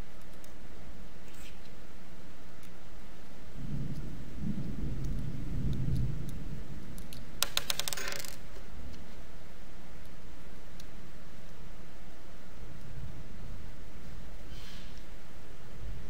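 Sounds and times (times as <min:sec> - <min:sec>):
light clicks and handling noise: 0:00.0 - 0:00.6, 0:02.5 - 0:02.9, 0:05.0 - 0:09.3
metal washers and nuts clinking: 0:07.5 - 0:08.4.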